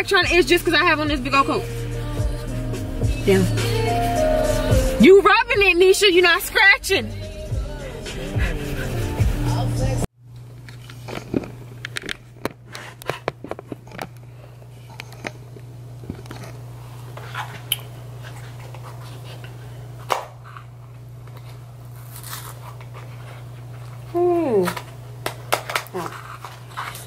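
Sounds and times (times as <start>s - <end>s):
steady low hum: 0.0s - 27.0s
objects being handled: 10.4s - 16.6s.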